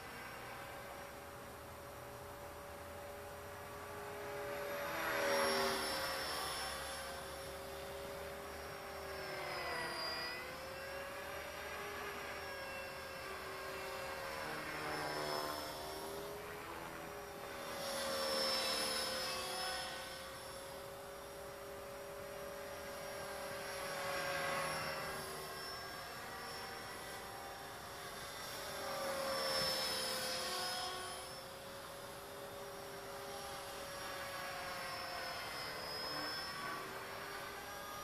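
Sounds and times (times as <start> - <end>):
rc helicopter rotor whine: 0.0 - 38.0.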